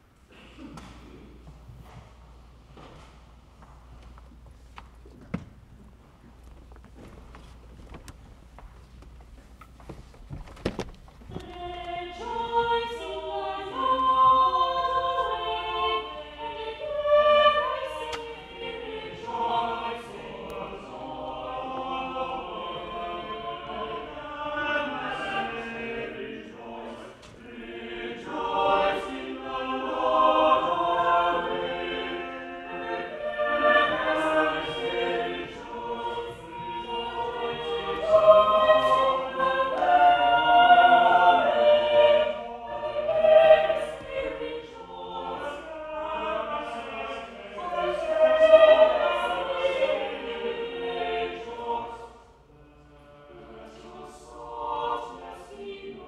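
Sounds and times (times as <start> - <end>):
church choir singing: 11.2 - 56.0.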